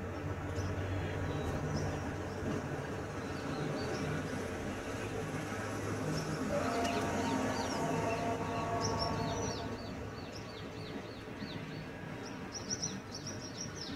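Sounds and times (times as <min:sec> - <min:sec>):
birds chirping: 0:00.0 - 0:13.9.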